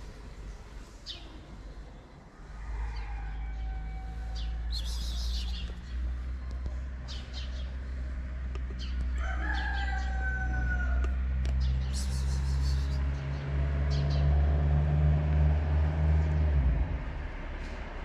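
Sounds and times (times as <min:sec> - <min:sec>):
rooster crowing: 0:02.5 - 0:04.8, 0:09.2 - 0:11.1.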